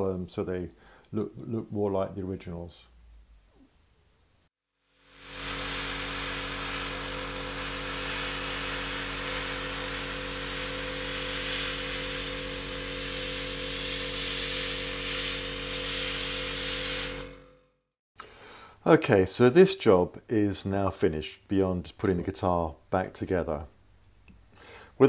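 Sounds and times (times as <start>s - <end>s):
airbrush hissing: 5.1s - 17.3s
compressor humming: 5.2s - 17.4s.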